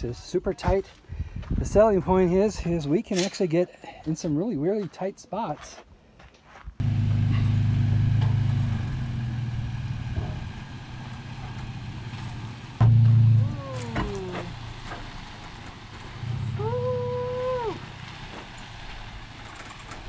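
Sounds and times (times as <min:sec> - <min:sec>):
truck engine humming: 0:06.8 - 0:20.0.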